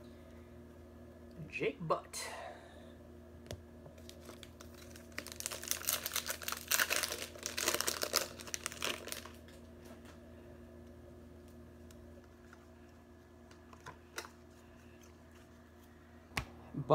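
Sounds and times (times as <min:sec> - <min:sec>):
wrapper crinkling: 0:04.0 - 0:09.6.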